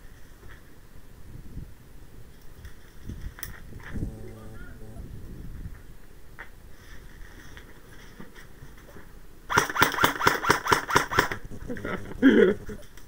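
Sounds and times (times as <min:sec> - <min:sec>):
person speaking briefly: 0:04.0 - 0:05.0
airsoft rifle rapid shots: 0:09.5 - 0:11.4.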